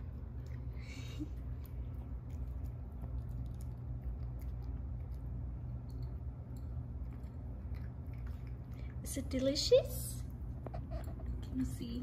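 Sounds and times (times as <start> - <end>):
steady low hum: 0.0 - 12.0
dog crunching dry kibble: 1.5 - 9.6.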